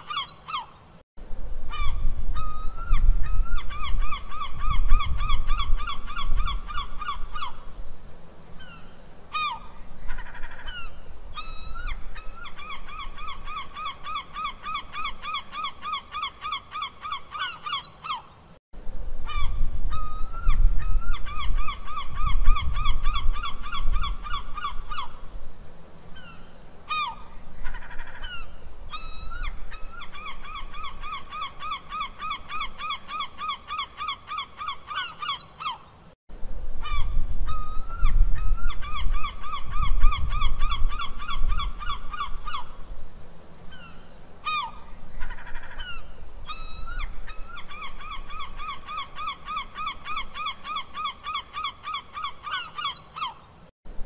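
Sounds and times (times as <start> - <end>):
seagull squawking: 0.0 - 0.8, 43.7 - 53.5.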